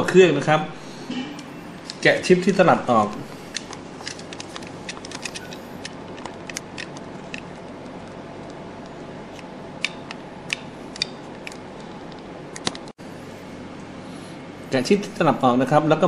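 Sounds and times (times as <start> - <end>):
low background hum: 0.0 - 16.0.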